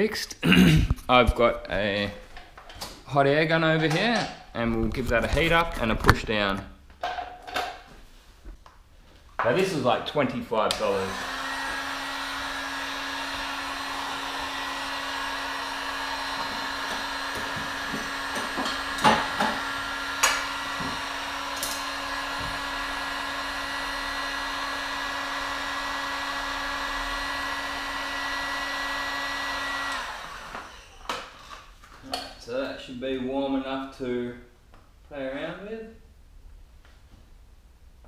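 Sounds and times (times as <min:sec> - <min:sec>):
hot air gun fan whirring: 0:10.7 - 0:31.4.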